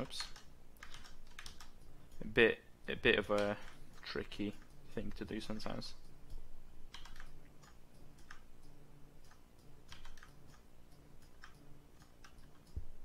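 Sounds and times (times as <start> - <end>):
mouse and keyboard clicks: 6.2 - 12.9.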